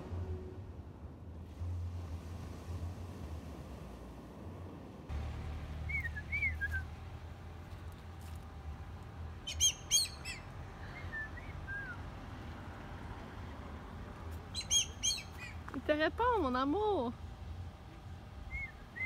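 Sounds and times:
bird whistling falling notes: 5.9 - 6.9
bird squawks: 9.5 - 10.5, 14.5 - 15.6.

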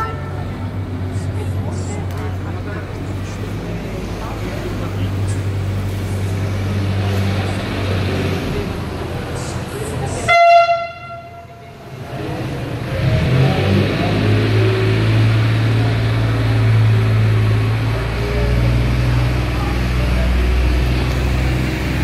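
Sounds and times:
horn steady tone: 0.0 - 0.6, 10.1 - 11.8
boat motor droning: 0.0 - 22.0.

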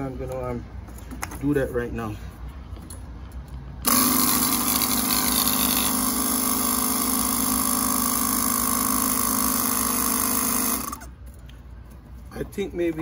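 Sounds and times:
electric air compressor running: 3.8 - 11.1.

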